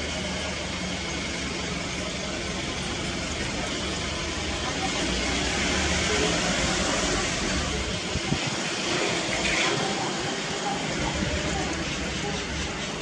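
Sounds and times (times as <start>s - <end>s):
rushing noise with low hum: 4.5s - 13.0s.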